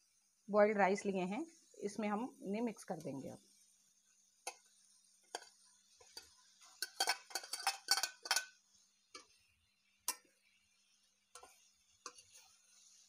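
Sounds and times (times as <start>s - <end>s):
spoon clinking against steel bowl: 6.2s - 8.6s.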